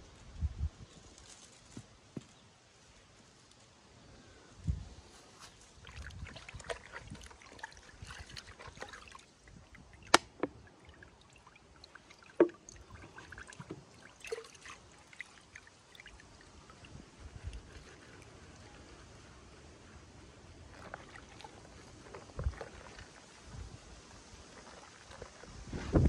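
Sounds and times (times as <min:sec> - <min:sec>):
liquid splashing and trickling: 0:05.5 - 0:18.8, 0:20.6 - 0:26.0.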